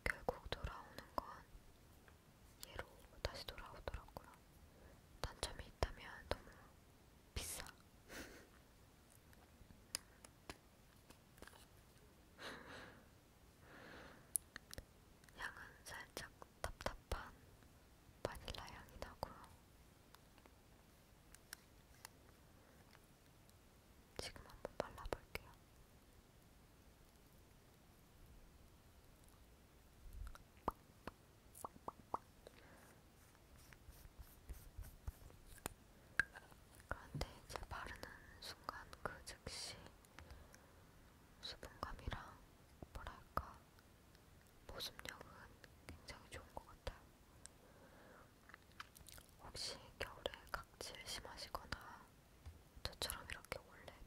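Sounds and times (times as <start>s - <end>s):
soft rustle: 18.3s - 23.6s, 31.6s - 40.6s.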